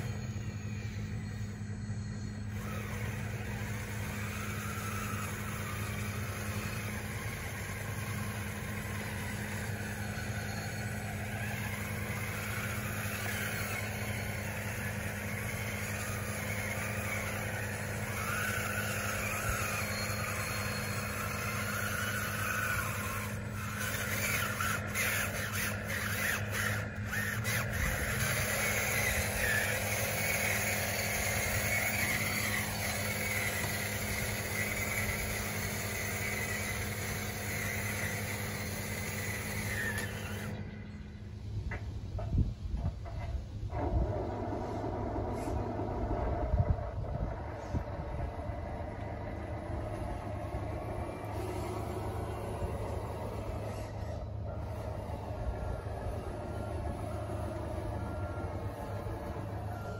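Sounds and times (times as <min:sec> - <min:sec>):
electric motors whining: 0:00.0 - 0:59.9
steady low hum: 0:00.0 - 0:59.9
quick run of clicks: 0:10.8 - 0:40.6.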